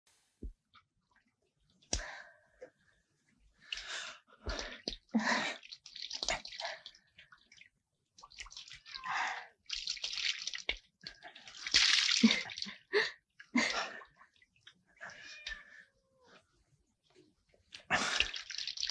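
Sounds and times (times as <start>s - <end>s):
water pouring and splashing: 3.6s - 15.8s, 17.6s - 18.9s.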